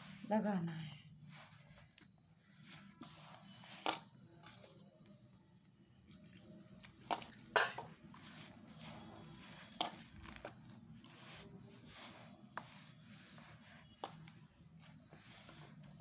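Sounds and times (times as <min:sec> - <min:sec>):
hands kneading dough: 0:00.0 - 0:04.8, 0:05.6 - 0:16.0.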